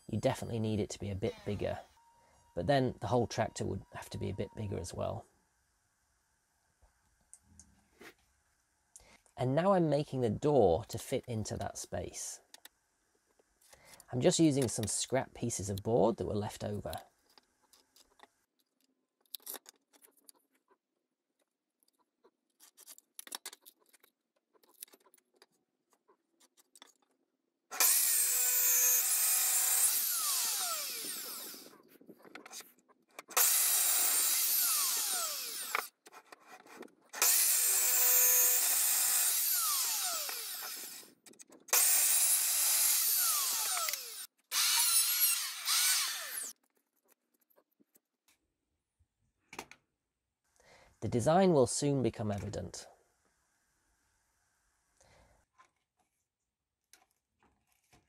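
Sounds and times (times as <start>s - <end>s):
mitre saw cutting wood: 27.7s - 31.8s, 33.3s - 35.9s, 37.1s - 46.6s.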